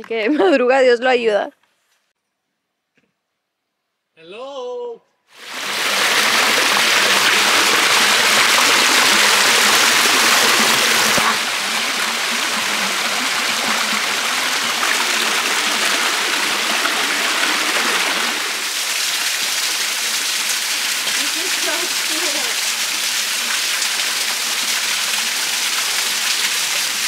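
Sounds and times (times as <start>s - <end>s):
stream rushing over rocks: 5.4s - 27.0s.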